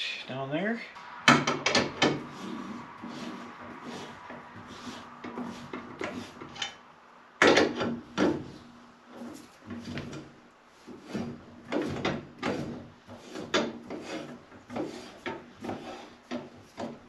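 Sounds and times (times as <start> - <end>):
lug wrench clanking on metal: 1.3 - 2.8, 5.2 - 6.8, 7.4 - 8.6.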